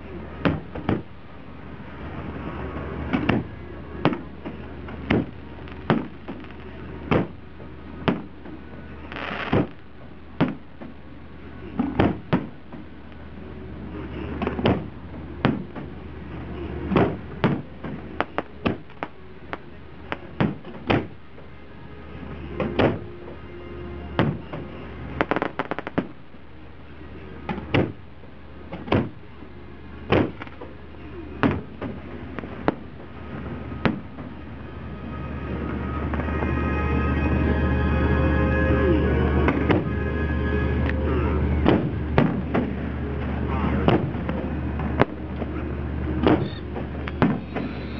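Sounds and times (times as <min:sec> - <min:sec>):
fireworks shells booming: 0:00.2 - 0:01.2, 0:01.8 - 0:13.2, 0:13.9 - 0:21.6, 0:22.2 - 0:23.4, 0:24.1 - 0:26.5, 0:27.4 - 0:29.4, 0:30.0 - 0:37.2, 0:39.4 - 0:47.9
music: 0:15.2 - 0:25.8, 0:28.4 - 0:47.9.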